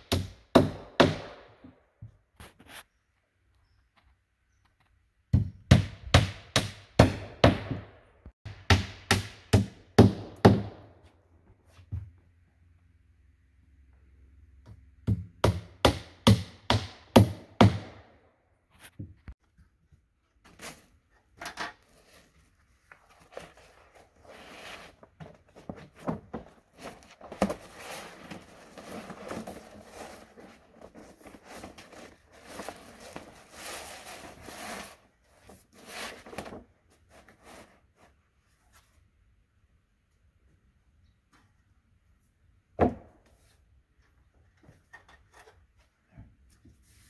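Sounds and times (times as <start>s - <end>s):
hammer blows on wooden boards: 0.0s - 1.8s, 5.3s - 11.0s, 14.6s - 18.2s.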